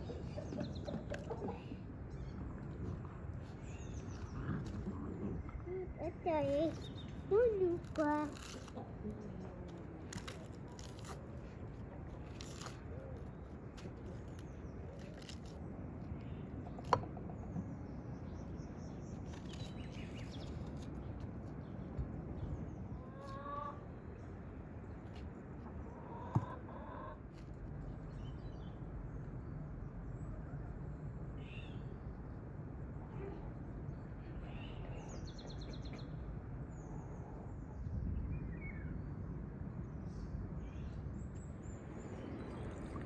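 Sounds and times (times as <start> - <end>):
outdoor background: 0.0 - 43.0.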